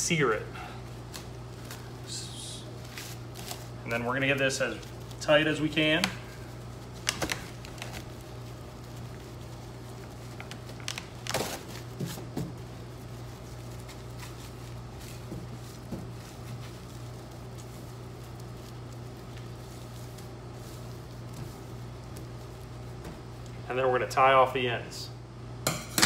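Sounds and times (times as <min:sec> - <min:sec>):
low machine hum: 0:00.0 - 0:26.0
plastic wrap crinkling: 0:00.1 - 0:24.2.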